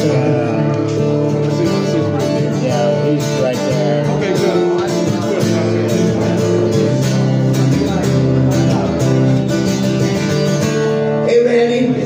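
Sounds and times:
acoustic guitar strumming: 0.0s - 12.0s.

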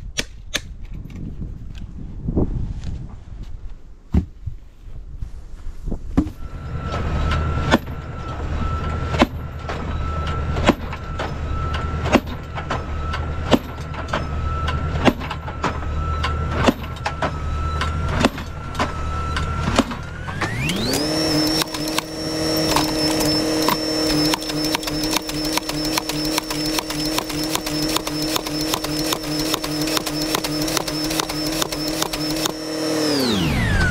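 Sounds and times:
steady whine: 6.3s - 33.9s
tractor engine running: 6.3s - 33.9s
post driver hammering post: 20.6s - 32.8s.

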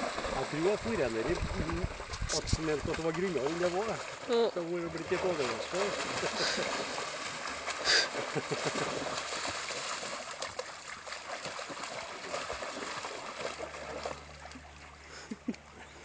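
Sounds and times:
dogs splashing through water: 0.0s - 16.0s.

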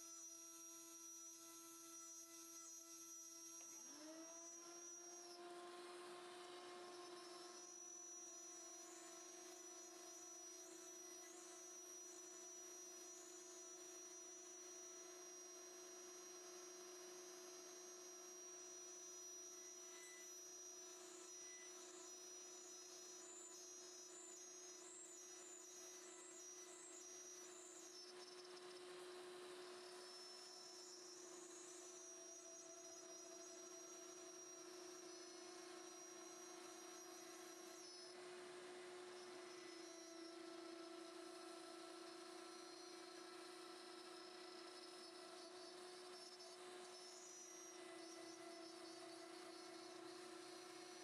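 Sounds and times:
cnc spindle humming: 0.0s - 51.0s
spindle whine: 29.6s - 51.0s.

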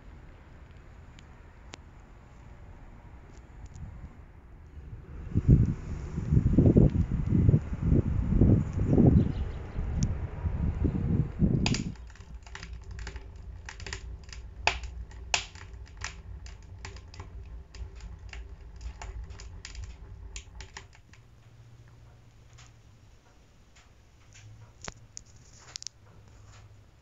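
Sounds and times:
low rumbling noise: 0.0s - 27.0s
wood fire crackling: 10.0s - 27.0s.

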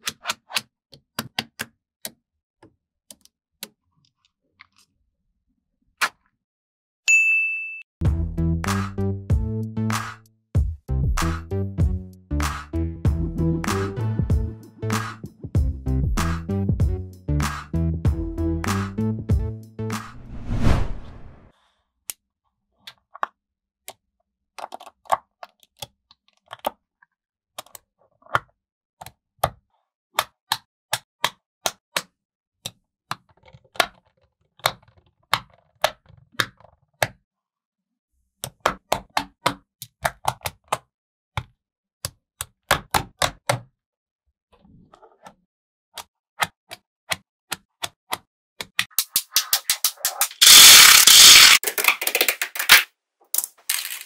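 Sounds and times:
magnetic balls clicking together: 48.8s - 52.8s.

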